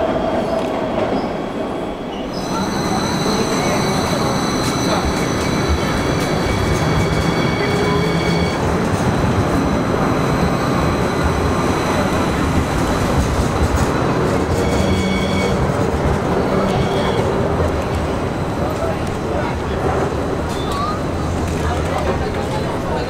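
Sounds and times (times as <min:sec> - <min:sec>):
light rail wheels rumbling: 0:00.0 - 0:23.0
high wheel squealing: 0:02.3 - 0:08.7, 0:14.2 - 0:17.4.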